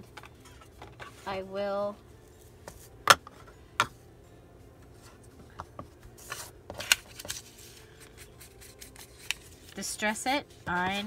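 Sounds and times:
paper rubbing: 7.1s - 9.8s.

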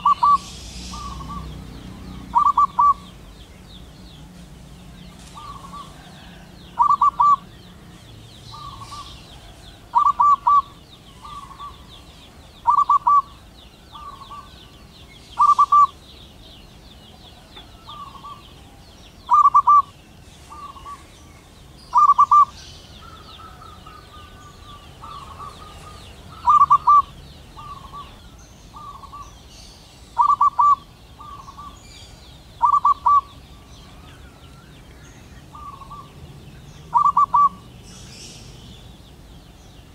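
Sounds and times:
dove cooing: 0.0s - 3.2s, 5.2s - 7.8s, 8.5s - 12.0s, 12.6s - 14.6s, 15.4s - 16.1s, 17.2s - 19.9s, 20.5s - 21.2s, 21.9s - 29.3s, 30.2s - 31.8s, 32.6s - 34.3s, 35.5s - 36.2s, 36.9s - 37.7s.

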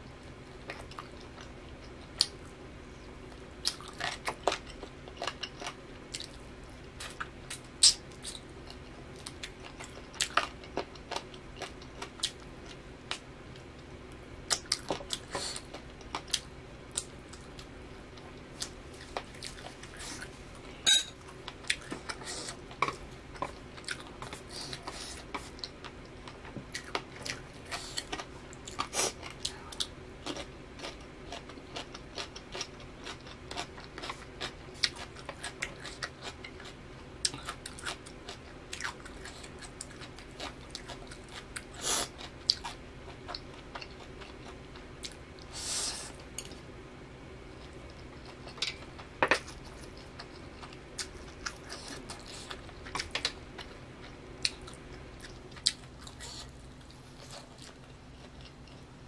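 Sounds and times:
faint steady hum: 0.0s - 59.0s
crunchy chewing and biting: 21.3s - 46.6s.

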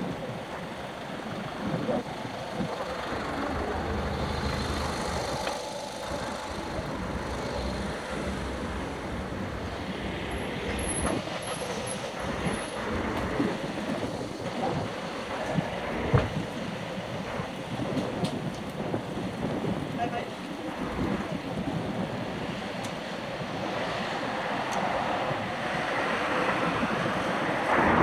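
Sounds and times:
vehicle engine idling: 0.0s - 17.9s
street traffic noise: 0.0s - 28.0s.

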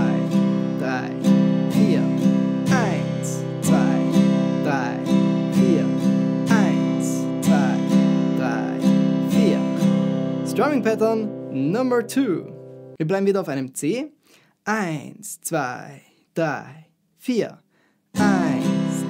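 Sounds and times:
acoustic guitar strumming: 0.0s - 13.0s, 18.2s - 19.0s.

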